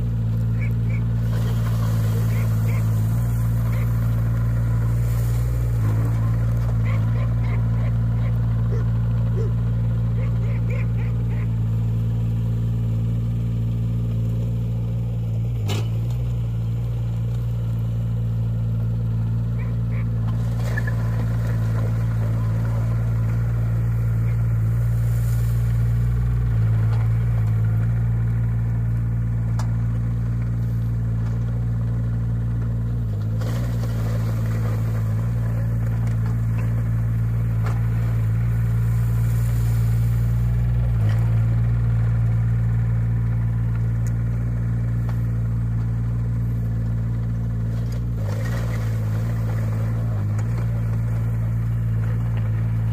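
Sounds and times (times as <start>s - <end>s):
tracks over gravel: 0.0s - 13.0s, 19.6s - 52.9s
excavator diesel engine running: 0.0s - 52.9s.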